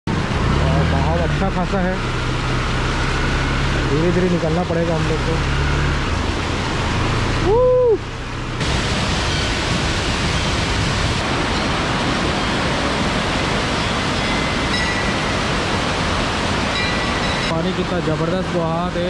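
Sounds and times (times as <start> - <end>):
river water rushing over falls: 6.0 - 19.0.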